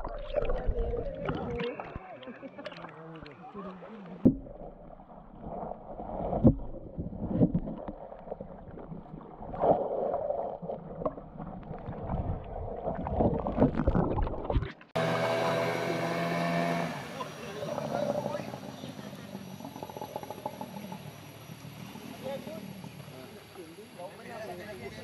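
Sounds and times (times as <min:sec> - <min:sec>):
underwater knocks and thumps: 0:00.0 - 0:02.0, 0:04.2 - 0:14.9
muffled underwater moving water: 0:00.0 - 0:15.0, 0:17.1 - 0:25.0
outboard motor running: 0:15.0 - 0:24.0.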